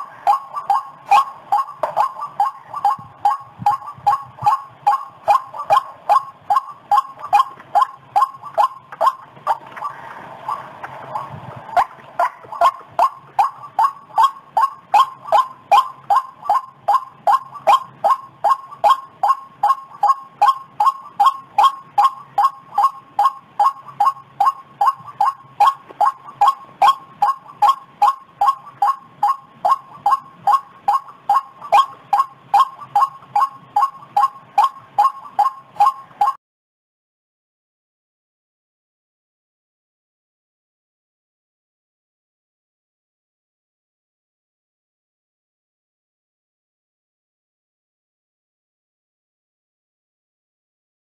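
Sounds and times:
waterhen calling: 0.0 - 36.4.

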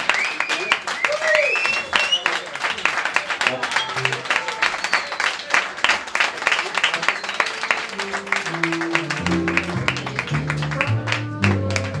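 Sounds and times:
audience applauding: 0.0 - 12.0
instrument playing low notes: 8.0 - 12.0.

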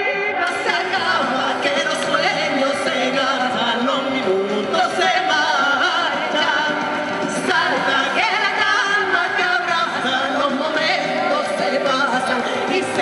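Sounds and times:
woman and man singing: 0.0 - 13.0.

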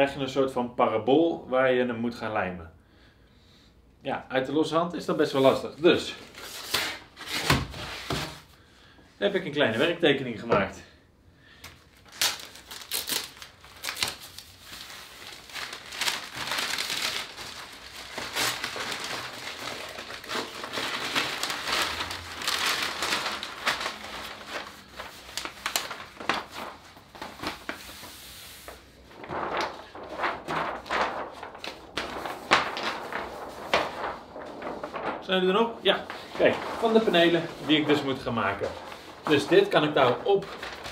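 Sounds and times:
paper rustling and crinkling: 5.4 - 8.5, 11.6 - 40.9.

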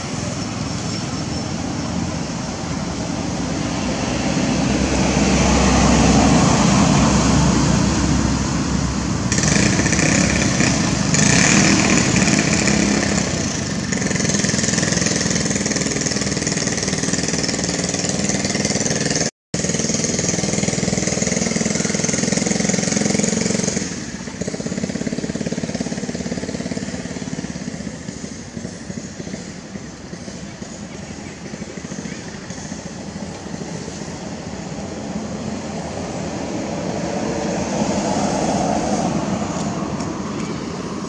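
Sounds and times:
vehicle engine noise: 0.0 - 41.0.

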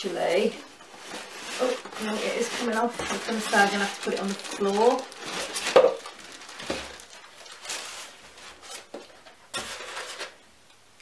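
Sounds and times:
foam scraping against cardboard: 1.0 - 5.6.

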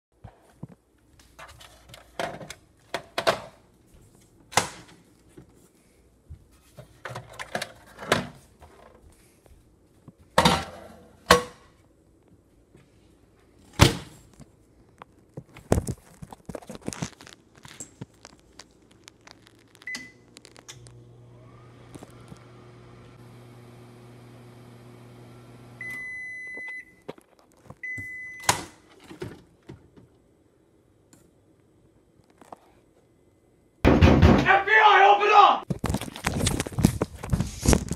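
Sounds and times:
microwave oven humming: 20.0 - 26.6.

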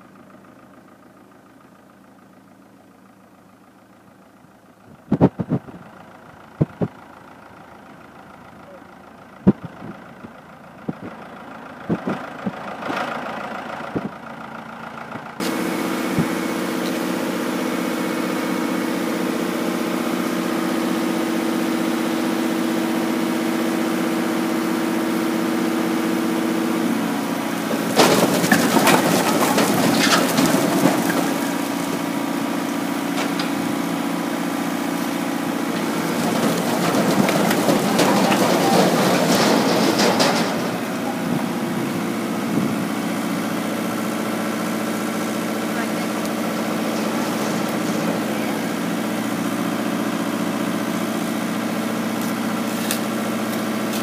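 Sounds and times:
tractor diesel engine running: 0.0 - 54.0
logs tumbling and clattering: 27.6 - 34.0, 35.6 - 41.5, 46.1 - 49.6.

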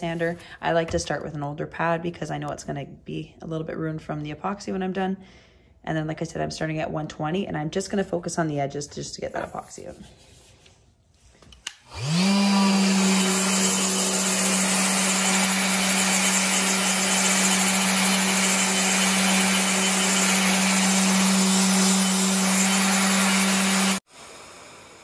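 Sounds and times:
orbital sander grinding: 11.8 - 24.4.

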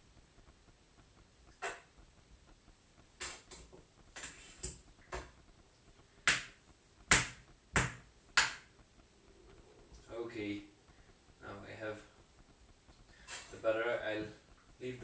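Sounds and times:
utensil scraping frying pan: 3.2 - 5.4, 13.1 - 14.0.

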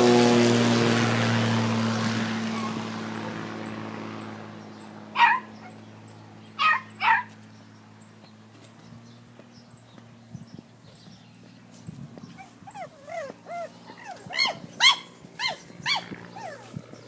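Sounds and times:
low-flying plane engine: 0.0 - 17.0
pet animal high cries: 2.5 - 2.8, 5.2 - 5.8, 6.6 - 7.3, 12.4 - 16.8.

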